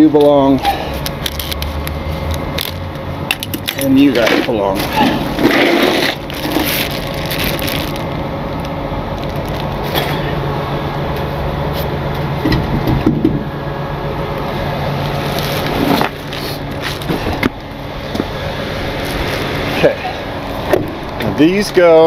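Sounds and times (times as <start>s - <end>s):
truck engine idling: 0.0s - 22.0s
plastic bag crinkling: 4.8s - 9.8s
footsteps on asphalt: 14.5s - 19.7s.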